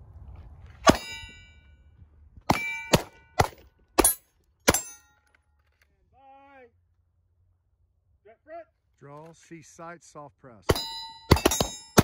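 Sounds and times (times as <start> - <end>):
bullet clanging on steel target: 0.9 - 1.6, 2.5 - 5.4, 10.7 - 12.0
handgun shots: 10.7 - 12.0.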